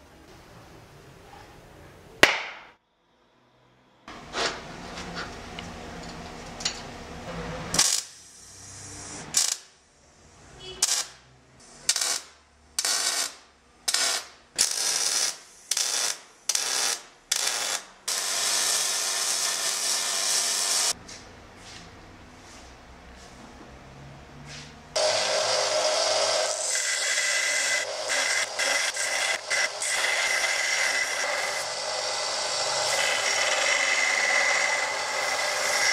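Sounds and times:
welder arcing: 7.7 - 9.8, 10.6 - 21.0, 25.0 - 35.9.

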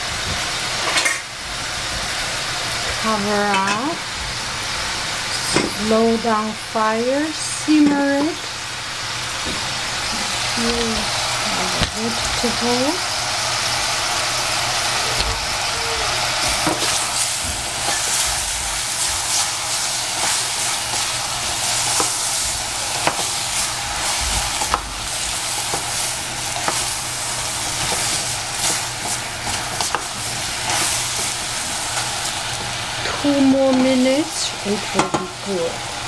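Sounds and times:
vegetables hissing in a pan: 0.0 - 36.0
wooden spoon knocking pan: 20.1 - 27.0.

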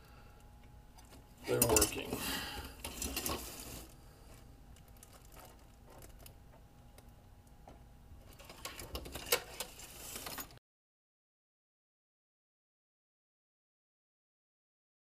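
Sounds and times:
plastic rustling: 2.8 - 6.2.

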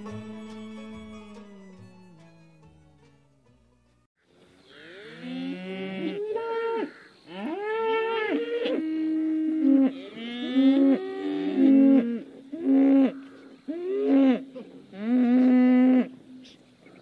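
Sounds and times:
cattle mooing: 4.7 - 16.6.

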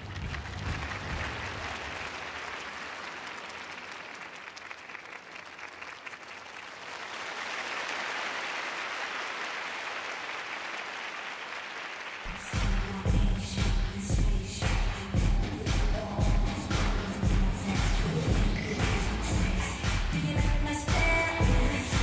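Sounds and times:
music: 0.0 - 2.2, 12.3 - 22.0
audience applauding: 0.0 - 13.4.

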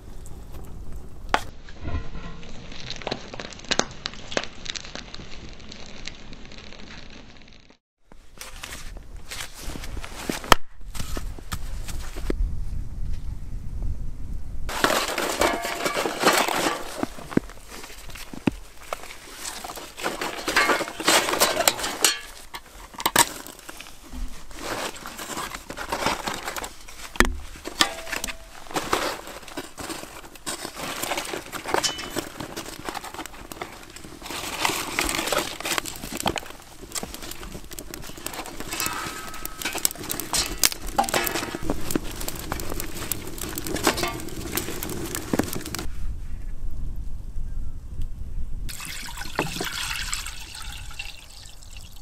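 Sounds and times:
kindling crackling as it burns: 0.0 - 12.3, 14.7 - 46.1
paper rustling: 14.7 - 45.9
sticks knocking in metal barrel: 38.7 - 41.6.

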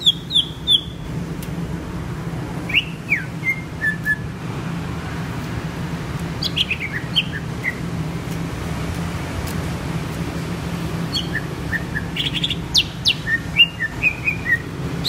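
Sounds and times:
bird singing: 0.0 - 1.1, 2.6 - 4.3, 6.4 - 7.9, 11.0 - 15.0.

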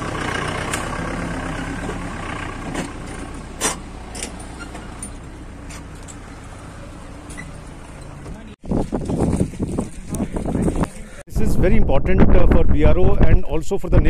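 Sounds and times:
truck engine idling: 0.0 - 8.6
vehicles driving past: 0.0 - 11.2.

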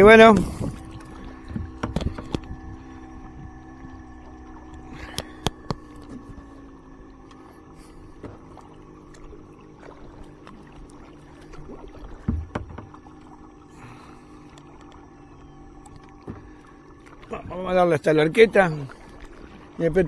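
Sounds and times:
paddle splashing in water: 0.0 - 20.0
water washing along hull: 0.0 - 20.0
small clicks: 4.7 - 6.4.

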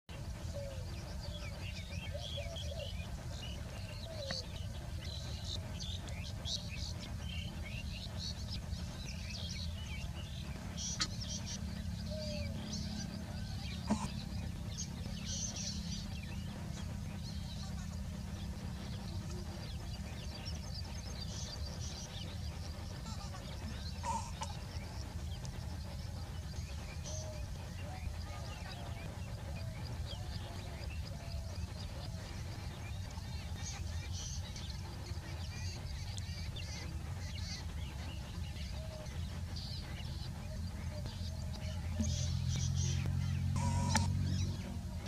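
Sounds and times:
birds chirping: 0.1 - 45.0
lower whistled bird notes: 0.1 - 45.0
steady low rumble: 0.1 - 45.0
loud bird call: 23.0 - 25.1, 42.0 - 44.7.

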